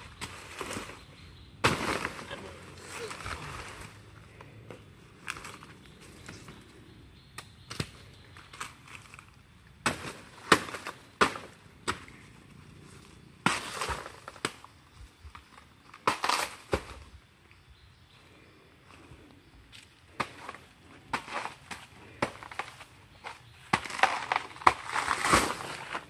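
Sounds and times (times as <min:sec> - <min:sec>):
dry leaves crackling and snapping: 0:00.0 - 0:04.1, 0:05.2 - 0:06.6, 0:07.4 - 0:14.8, 0:15.4 - 0:17.0, 0:21.2 - 0:26.0.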